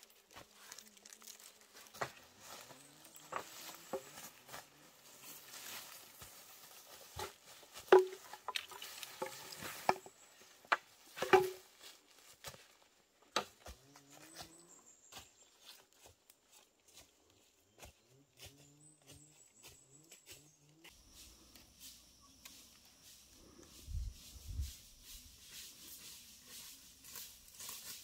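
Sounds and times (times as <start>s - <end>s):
footsteps on dry leaves: 0.0s - 13.0s, 13.7s - 28.0s
bamboo poles knocking: 3.2s - 4.6s, 7.0s - 11.8s.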